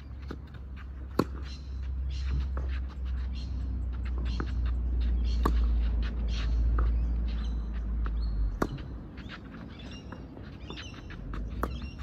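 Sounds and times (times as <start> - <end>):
birds chirping: 0.0 - 12.0
tennis racquet hitting ball: 0.2 - 2.8, 4.1 - 7.4, 8.6 - 9.3, 10.1 - 12.0.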